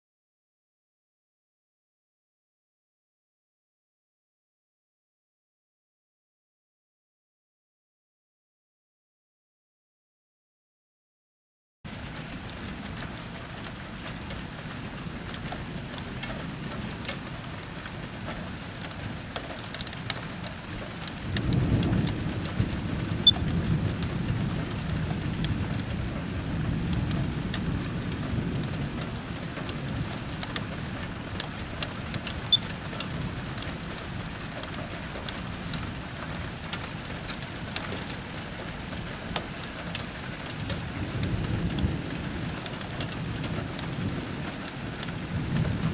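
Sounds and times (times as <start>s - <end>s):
raindrop ticks: 11.9s - 45.9s
steady rain: 11.9s - 45.9s
low thunder rumble: 20.0s - 39.1s, 40.2s - 45.9s.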